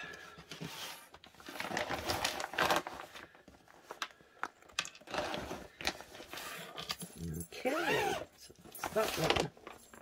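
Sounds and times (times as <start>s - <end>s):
plastic bag crinkling: 1.2s - 7.8s.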